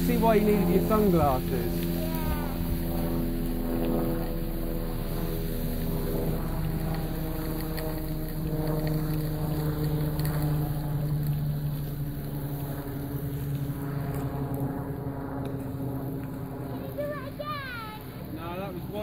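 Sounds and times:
thermite burning hiss: 0:00.0 - 0:14.6.

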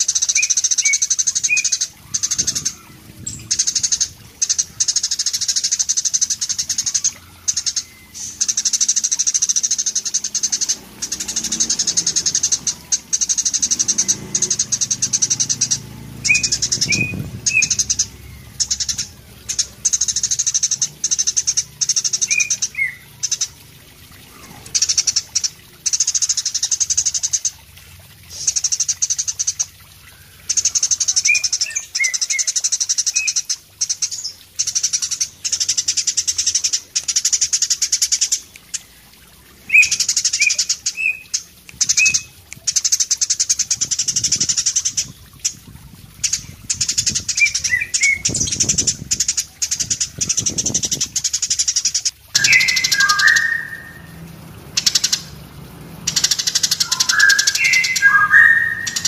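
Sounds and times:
sparrow chattering song: 0:00.0 - 0:23.6, 0:39.6 - 0:45.6, 0:46.2 - 0:59.0
sparrow chirps: 0:00.0 - 0:23.6, 0:39.7 - 0:45.5, 0:46.2 - 0:59.0.

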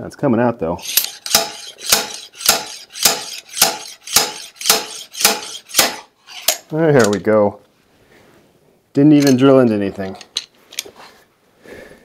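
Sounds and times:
slide hammer clanking: 0:00.8 - 0:07.2.

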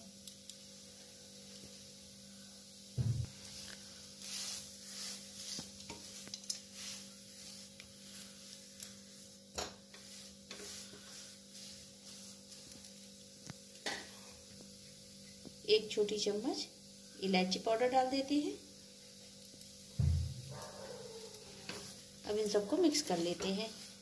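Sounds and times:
faint sizzle: 0:00.0 - 0:24.0
spatula scraping in pan: 0:03.4 - 0:15.4, 0:21.2 - 0:24.0.

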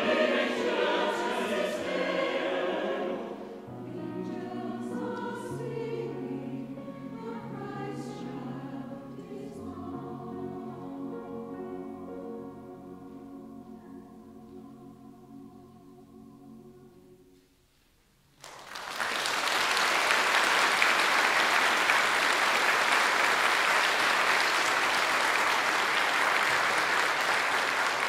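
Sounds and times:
audience applause: 0:18.4 - 0:28.0.

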